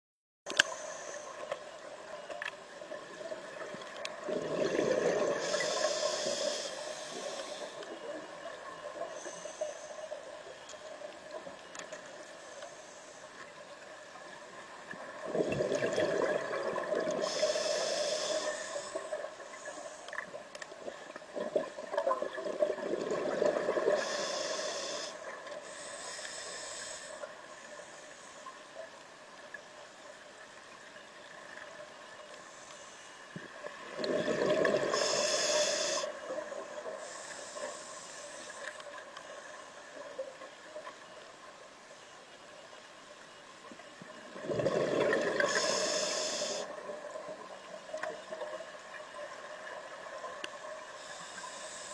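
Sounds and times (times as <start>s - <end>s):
regulator hiss: 0.5s - 3.6s, 4.6s - 11.5s, 16.8s - 20.4s, 23.6s - 28.6s, 34.6s - 40.1s, 45.2s - 47.3s, 50.1s - 51.9s
faint steady hum: 0.5s - 51.9s
bubbles rushing out underwater: 4.2s - 5.4s, 15.2s - 17.2s, 33.9s - 35.0s, 44.3s - 45.5s.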